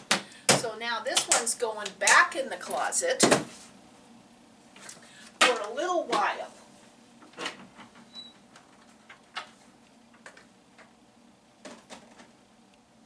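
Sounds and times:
door squeak: 8.0 - 8.5.

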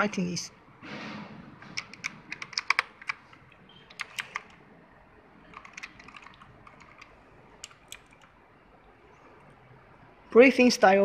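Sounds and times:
mechanical keyboard clicking: 1.6 - 4.6, 5.4 - 8.3.

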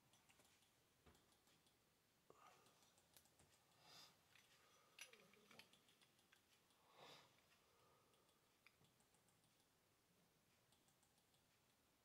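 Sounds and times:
soft handling noises: 2.4 - 7.7
faint clicks: 10.5 - 11.9.

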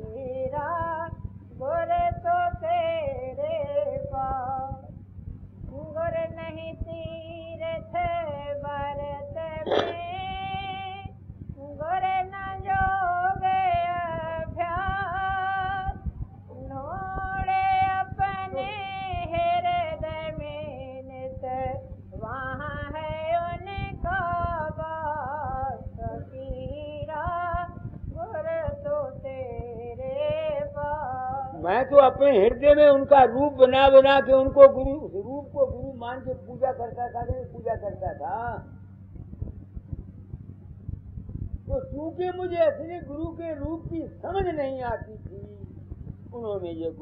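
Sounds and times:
low hum: 0.0 - 47.0
sharp click: 9.6 - 10.2.

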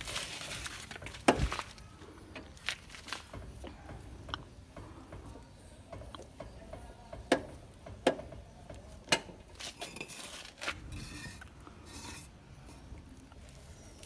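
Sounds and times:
brick scraping on paving stones: 9.5 - 12.4.

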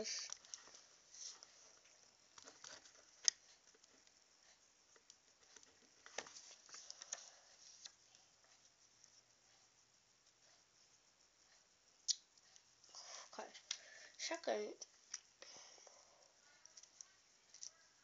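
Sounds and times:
soft handling rustles: 0.0 - 9.6.

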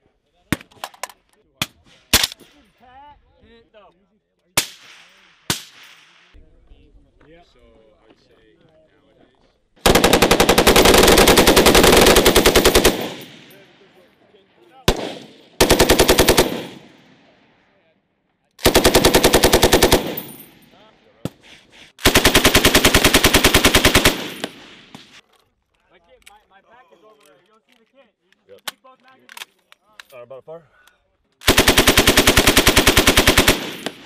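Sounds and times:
machine gun firing bursts: 9.8 - 13.5, 14.9 - 17.0, 18.6 - 20.6, 22.0 - 25.2, 31.4 - 34.0
rolling gunfire echo: 9.8 - 14.0, 14.8 - 17.7, 18.6 - 25.2, 31.4 - 34.0.

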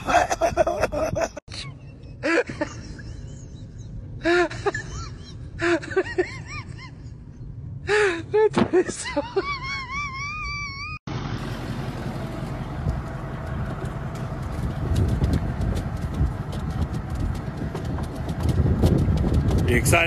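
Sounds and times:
truck engine rumbling: 8.9 - 20.0.

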